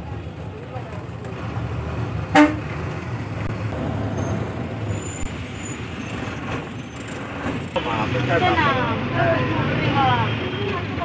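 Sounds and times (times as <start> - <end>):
bus engine running: 0.0 - 11.0
vehicle horn toot: 2.3 - 2.6.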